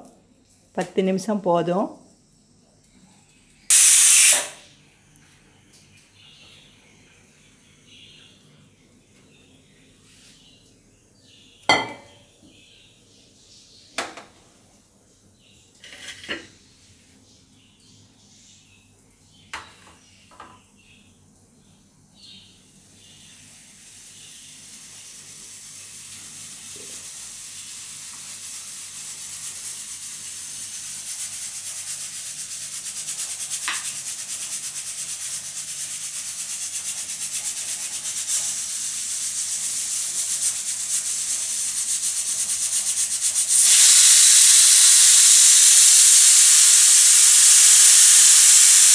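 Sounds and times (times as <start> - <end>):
pressure cooker steam hissing: 3.7 - 4.6, 23.5 - 48.9.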